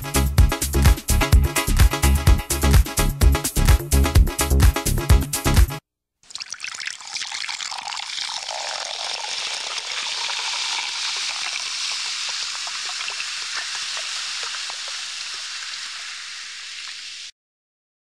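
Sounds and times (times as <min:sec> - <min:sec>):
soda fizzing in a glass: 0:06.3 - 0:17.3.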